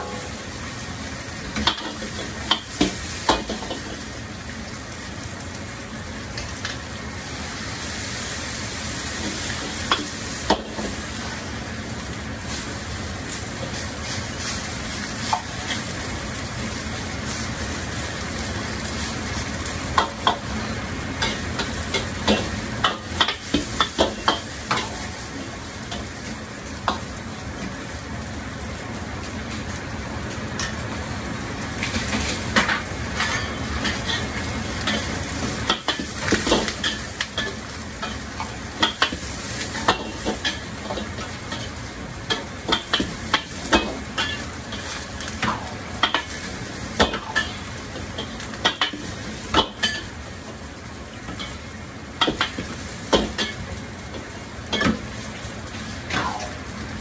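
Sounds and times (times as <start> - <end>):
food sizzling in hot oil: 0.0 - 57.0
metal utensils clanking on woks: 1.5 - 4.1, 19.9 - 26.1, 31.9 - 50.2, 51.2 - 55.2.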